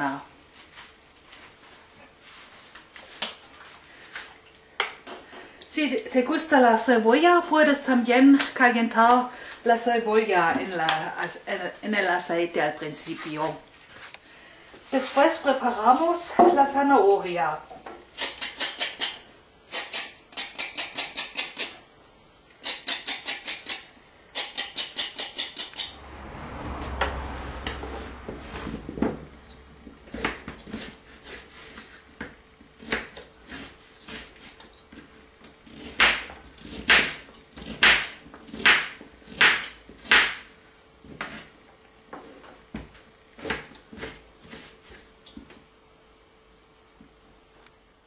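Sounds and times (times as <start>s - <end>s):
carrots being peeled: 18.2s - 21.8s, 22.5s - 25.9s.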